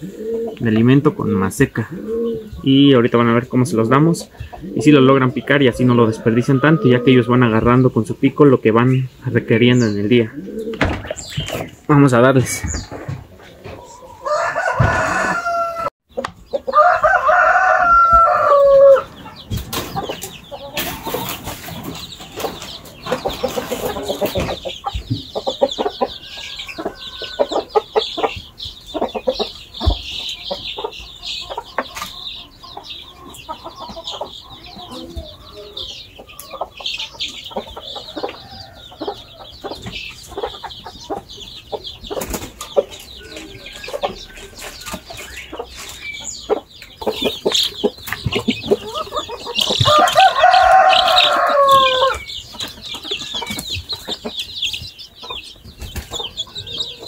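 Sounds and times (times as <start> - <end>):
chicks pecking at feed: 0.0 - 57.0
chicks peeping: 0.0 - 57.0
rooster crowing: 5.4 - 7.2, 13.8 - 16.0, 16.7 - 19.1, 26.2 - 27.7, 49.8 - 52.2.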